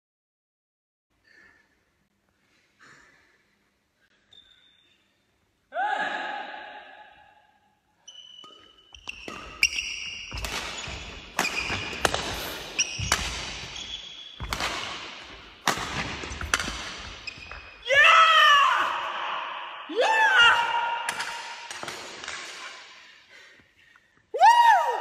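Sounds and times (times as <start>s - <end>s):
sneakers squeaking on court floor: 4.2s - 5.2s, 8.0s - 17.8s
rackets striking shuttlecock: 8.3s - 17.8s, 21.1s - 22.9s.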